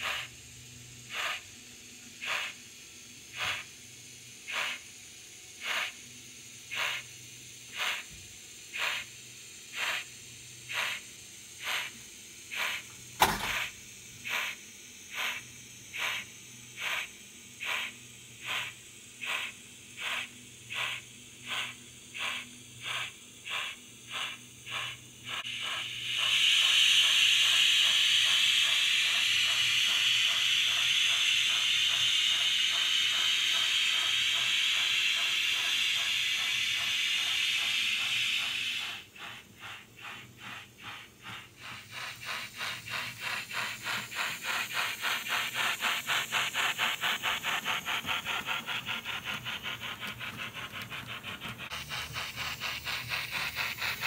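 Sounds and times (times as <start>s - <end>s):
steam hissing: 0.0s - 54.0s
steam locomotive chuffs: 0.0s - 54.0s
sharp metal clank: 13.2s - 13.7s.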